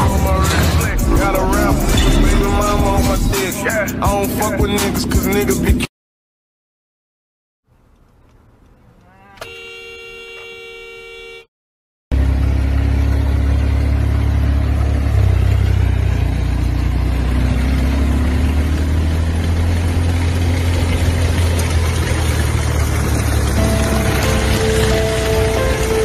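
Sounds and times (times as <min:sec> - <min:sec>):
loud low rumble with hiss: 0:00.0 - 0:05.8
car horn: 0:09.0 - 0:11.5, 0:23.5 - 0:26.0.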